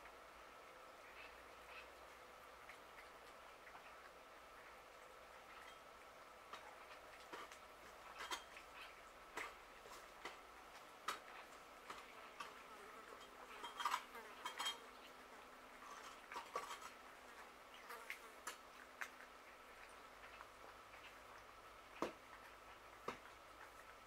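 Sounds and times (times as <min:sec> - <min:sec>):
cats chewing food: 0:00.7 - 0:24.0
food and teeth against dish: 0:15.8 - 0:23.9.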